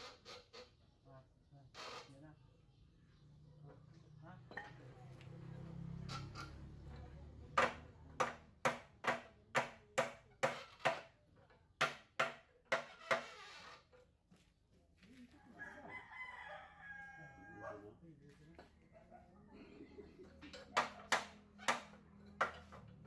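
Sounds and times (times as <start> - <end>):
rooster crowing: 15.4 - 17.9.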